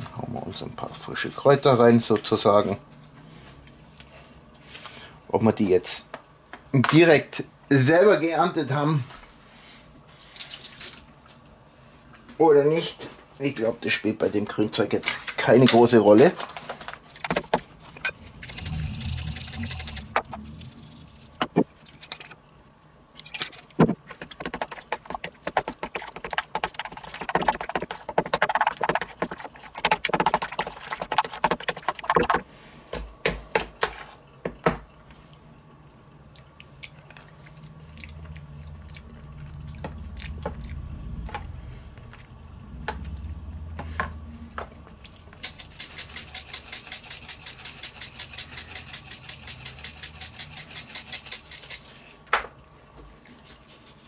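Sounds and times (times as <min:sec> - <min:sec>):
pepper mill grinding: 0:17.8 - 0:21.4, 0:45.1 - 0:52.2.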